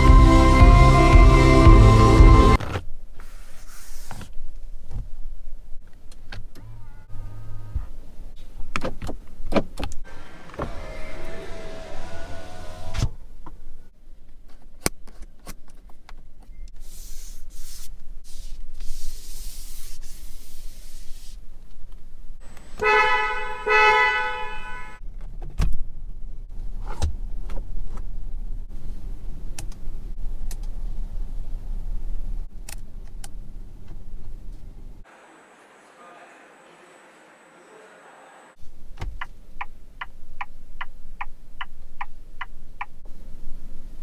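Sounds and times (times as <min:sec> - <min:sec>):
car horn honks: 0:22.8 - 0:25.0.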